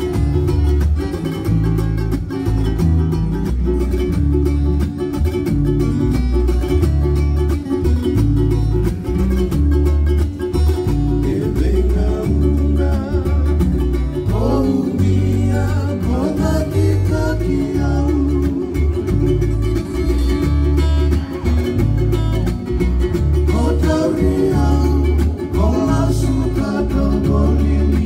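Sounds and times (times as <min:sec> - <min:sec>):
acoustic guitar strumming: 0:00.0 - 0:28.0
electric bass sustained notes: 0:00.0 - 0:28.0
man singing: 0:11.1 - 0:19.5, 0:23.4 - 0:28.0.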